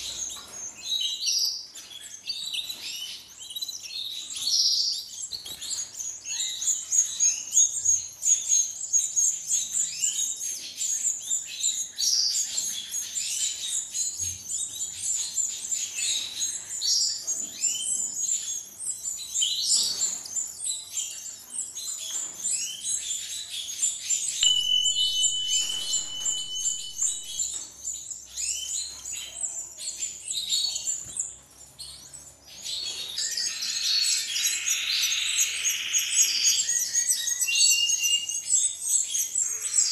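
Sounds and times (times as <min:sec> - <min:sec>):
chicks chirping: 0:24.2 - 0:39.9
steady whistle-like note: 0:24.4 - 0:27.5.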